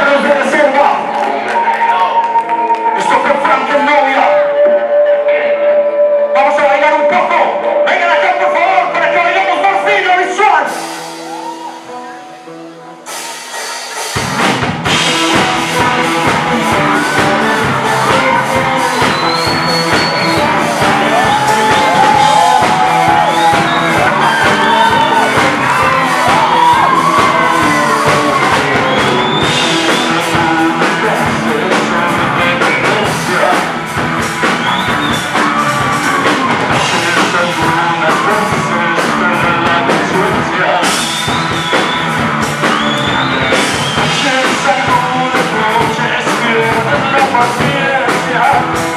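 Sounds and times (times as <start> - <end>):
drums: 7.0 - 48.9
bass guitar: 9.6 - 48.9
electric guitar: 10.7 - 48.9
person shout-singing: 16.8 - 33.7, 35.8 - 40.9.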